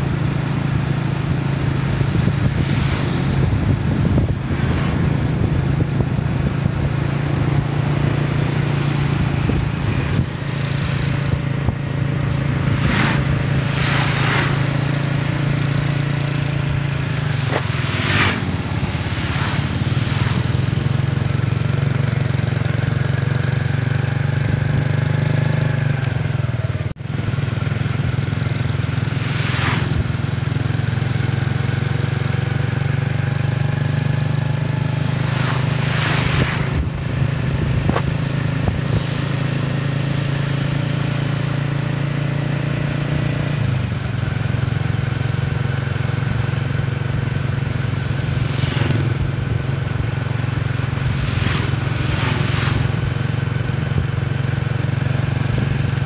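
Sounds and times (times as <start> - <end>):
motorcycle engine running: 0.0 - 56.0
short hissing swells: 0.9 - 21.7, 27.8 - 31.9, 34.7 - 40.0, 46.2 - 54.6.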